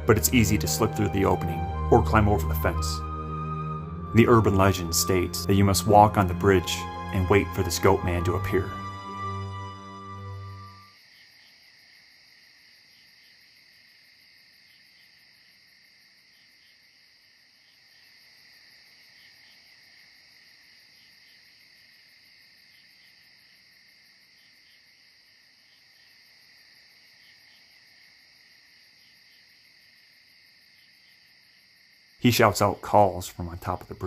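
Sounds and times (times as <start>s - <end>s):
crickets and insects chirping: 3.8s - 34.0s.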